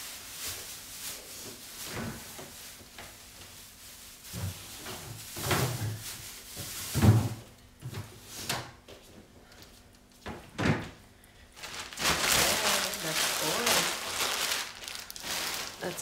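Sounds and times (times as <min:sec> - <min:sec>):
plastic bags rustling: 0:00.0 - 0:07.5, 0:11.4 - 0:16.0
knocks and thumps from fridge shelves: 0:04.3 - 0:08.8, 0:10.2 - 0:11.0.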